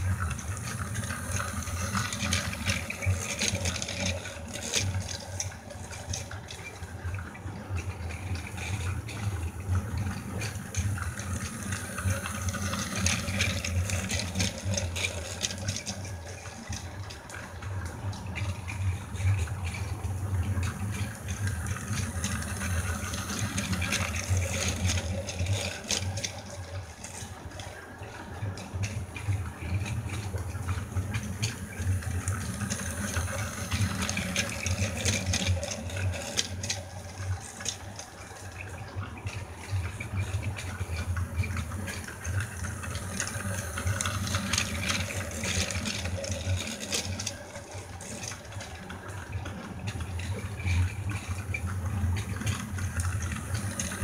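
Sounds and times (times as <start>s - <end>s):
toy train motor whirring: 0.0s - 5.6s, 10.2s - 17.0s, 18.5s - 27.6s, 30.2s - 38.2s, 40.0s - 49.1s, 49.9s - 54.0s.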